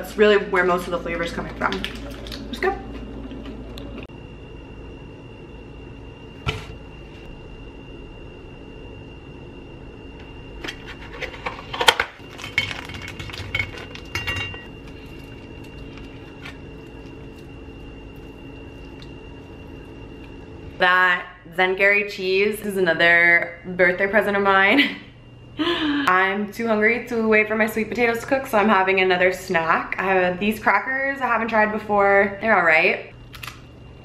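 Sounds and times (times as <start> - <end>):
faint steady hum: 0.0 - 34.0
plastic wrapper crinkling: 1.7 - 2.5.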